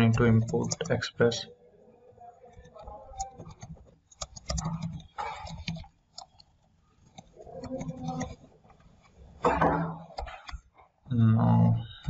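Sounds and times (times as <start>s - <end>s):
computer keyboard clicking: 0.0s - 1.0s, 2.6s - 9.1s.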